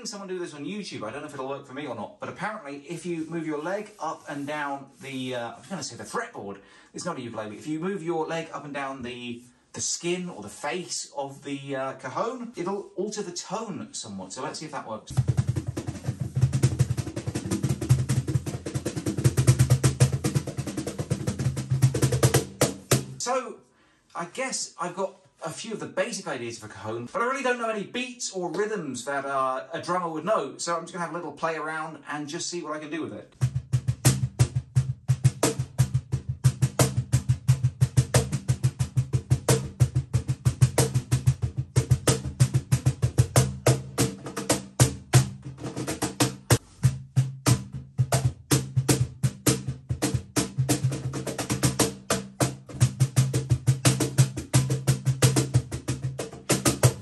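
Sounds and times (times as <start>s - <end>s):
cajon hand roll: 15.1s - 23.2s, 47.4s - 57.0s.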